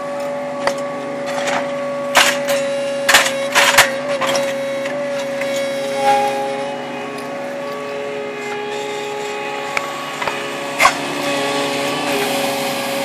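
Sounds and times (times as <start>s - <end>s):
paving machine running: 0.0s - 13.0s
concrete blocks clacking together: 1.3s - 4.6s.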